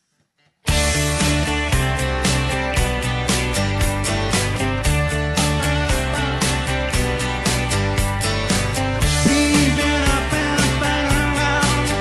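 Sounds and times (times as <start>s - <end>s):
acoustic guitar strumming: 0.7s - 12.0s
man singing: 5.3s - 6.9s, 9.0s - 12.0s.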